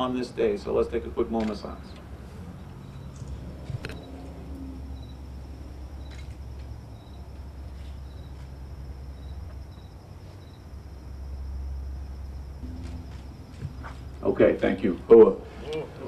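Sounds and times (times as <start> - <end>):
insects chirping: 0.0 - 16.0
low steady rumble: 0.0 - 16.0.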